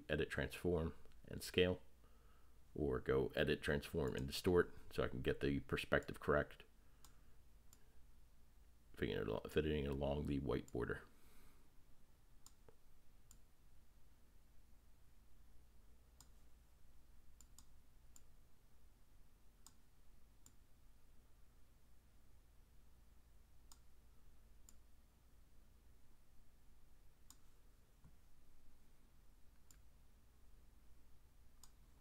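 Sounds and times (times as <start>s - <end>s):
low steady hum: 0.0s - 32.0s
faint computer mouse clicks: 17.4s - 18.3s.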